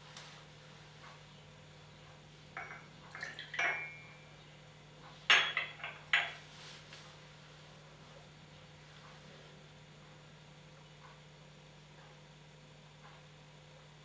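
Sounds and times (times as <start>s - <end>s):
porcelain cups clinking: 2.6s - 4.2s, 5.3s - 6.4s.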